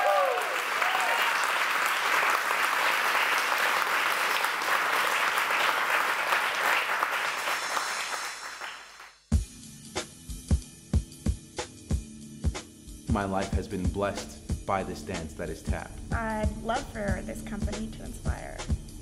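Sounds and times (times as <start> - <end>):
audience applauding: 0.0 - 9.2
sharp drum beat: 12.4 - 19.0.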